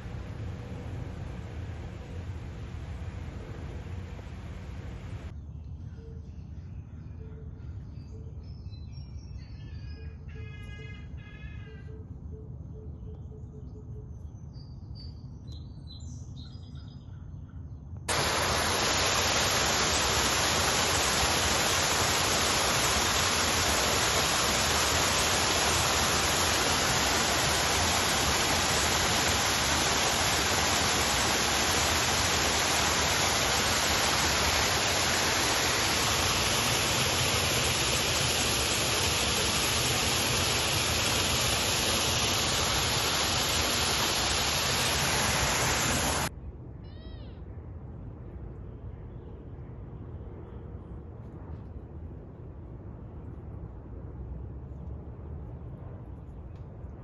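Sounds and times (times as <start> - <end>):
waterfall rushing: 0.0 - 0.3, 18.1 - 46.3.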